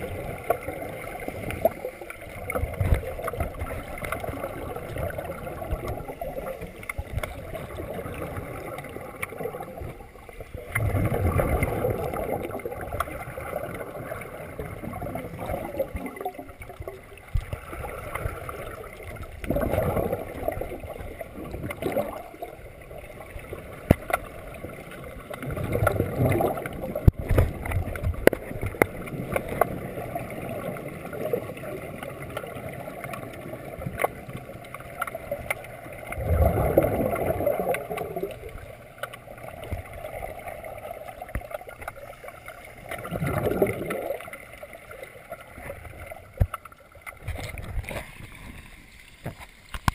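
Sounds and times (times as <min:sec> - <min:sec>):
underwater bubbles gurgling: 0:00.0 - 0:49.9
sharp clicks and knocks: 0:49.2 - 0:49.9.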